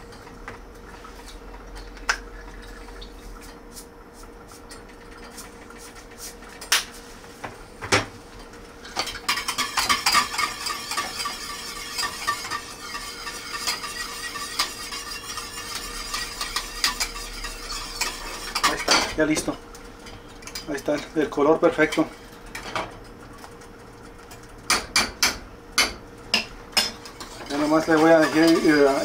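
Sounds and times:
utensil scraping around pot: 8.9 - 18.9, 27.0 - 29.0
utensil clinking against pot: 24.7 - 29.0.

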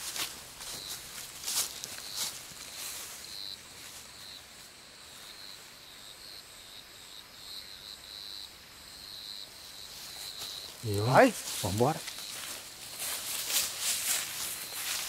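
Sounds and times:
faint background hiss: 0.0 - 15.0
insects trilling: 0.0 - 15.0.

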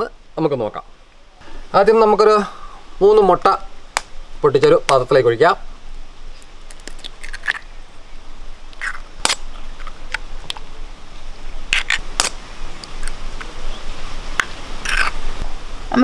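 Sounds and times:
knife cracking eggshells: 6.7 - 7.6, 8.8 - 10.2, 11.8 - 13.2, 14.4 - 15.2.

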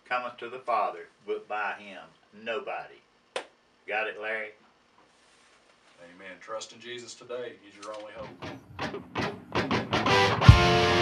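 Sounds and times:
held distorted guitar chord: 8.2 - 11.0
quick electric guitar notes: 8.2 - 11.0
rock music: 8.2 - 11.0.

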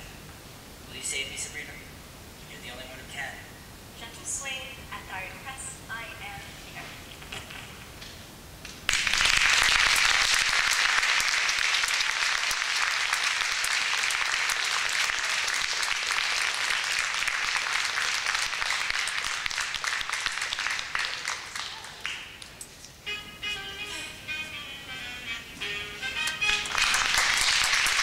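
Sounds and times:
audience applauding: 8.9 - 22.6, 26.4 - 28.0.

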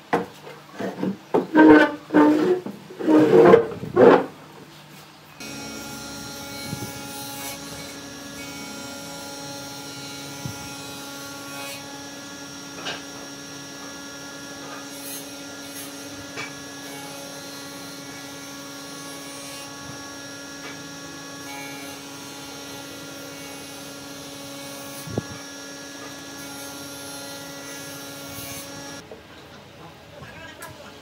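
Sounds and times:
power tool motor humming: 5.4 - 29.0.

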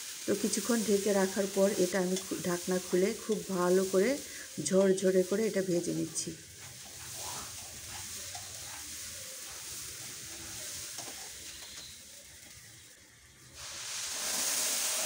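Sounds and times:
light sizzle: 0.0 - 15.0
water hissing in hot pan: 0.0 - 15.0
spatula scraping pan: 0.9 - 5.0, 5.7 - 12.0.

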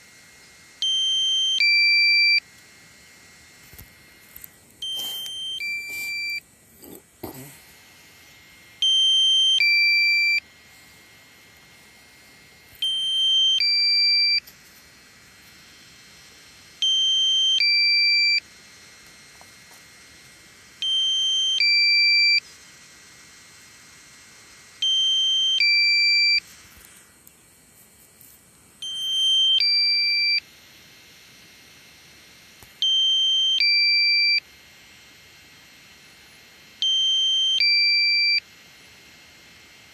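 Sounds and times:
faint steady hiss: 0.0 - 33.6
two-tone electronic warning beep: 0.8 - 2.5, 4.8 - 6.5, 8.8 - 10.5, 12.8 - 14.5, 16.8 - 18.5, 20.8 - 22.4, 24.8 - 26.5, 28.8 - 30.5, 32.8 - 34.5, 36.8 - 38.5.

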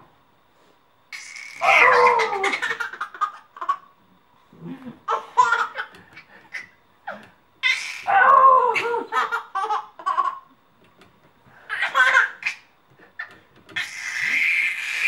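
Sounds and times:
baby laughing: 1.2 - 3.9, 5.1 - 8.1, 8.7 - 10.5, 11.7 - 15.0.

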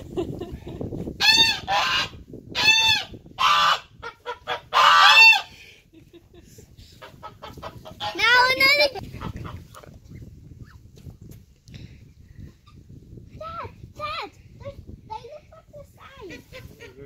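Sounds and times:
geese honking: 1.2 - 5.5.

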